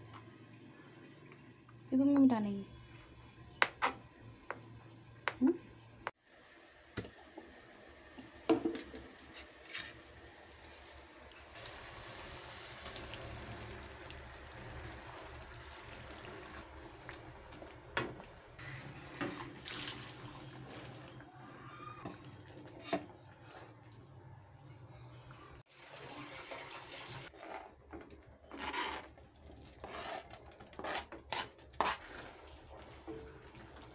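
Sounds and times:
steady sizzle: 0.0 - 21.2
paste and water pouring into pan: 25.8 - 33.9.

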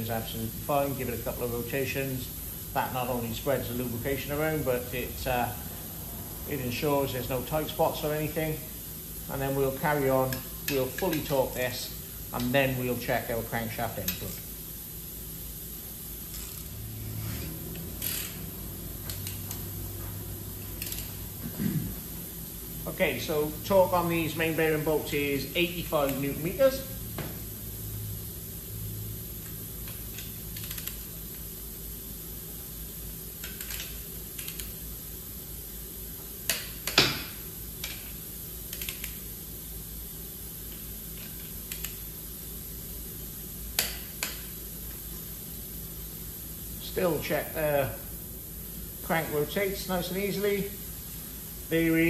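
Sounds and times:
steady low hum: 0.0 - 52.0
torque wrench ratcheting: 16.3 - 16.8, 17.7 - 19.6, 20.8 - 21.2, 29.8 - 31.1
torque wrench metallic clicks: 18.0 - 18.4, 19.1 - 19.6, 20.8 - 21.2, 29.8 - 31.0, 33.4 - 34.7.

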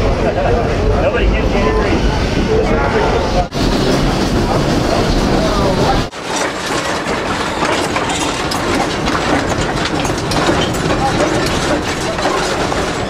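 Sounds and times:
steam locomotive rattling machinery: 0.0 - 13.0
wheels running over rails: 3.4 - 13.0.

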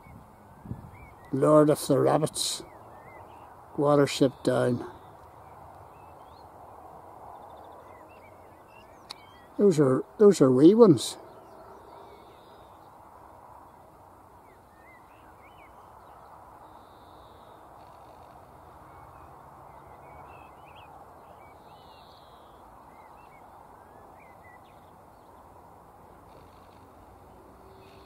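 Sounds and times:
bird chirps and calls: 0.0 - 6.5
low background hiss: 0.0 - 28.0.

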